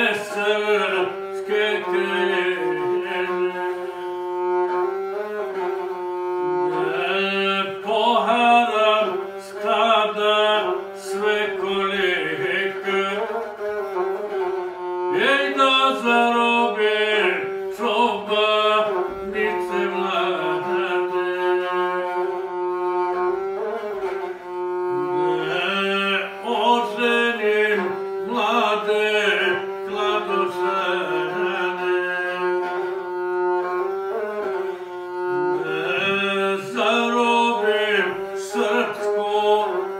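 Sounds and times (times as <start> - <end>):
man singing: 0.0 - 4.2, 6.7 - 13.6, 15.1 - 22.4, 25.1 - 33.0, 35.6 - 39.9
bowed single-string fiddle: 0.0 - 39.9.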